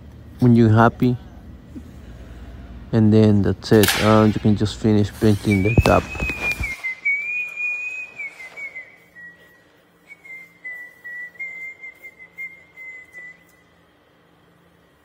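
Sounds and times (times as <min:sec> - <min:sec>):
faint handling noise: 0:05.2 - 0:06.9
thin high whistling tone: 0:05.2 - 0:13.8.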